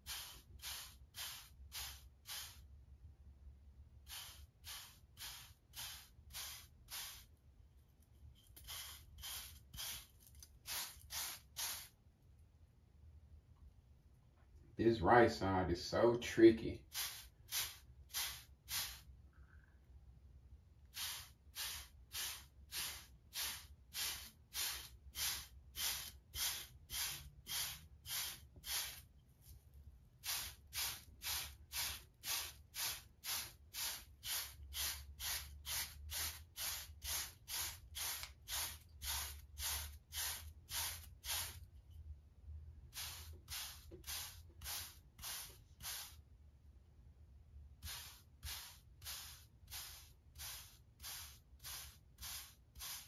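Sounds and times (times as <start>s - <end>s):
brush swishing through hair: 8.4s - 11.9s, 16.9s - 19.1s, 21.0s - 41.6s, 43.0s - 46.2s, 47.8s - 53.0s.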